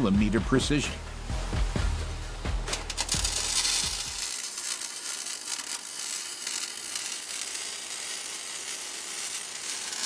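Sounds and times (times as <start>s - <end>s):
arc welding crackling hiss: 2.6s - 10.0s.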